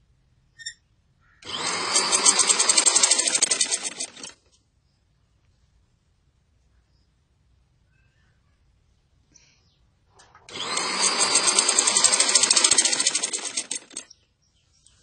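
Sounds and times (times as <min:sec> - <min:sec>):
sewing machine stitching: 0:01.4 - 0:04.4, 0:10.4 - 0:14.1.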